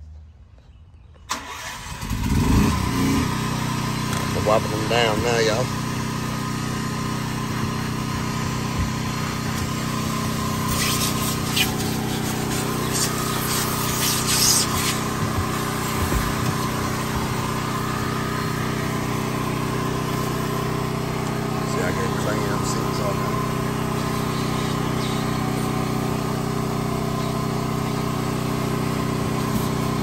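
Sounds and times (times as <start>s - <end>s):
engine running: 1.2s - 30.0s
short hissing sounds: 10.4s - 17.1s.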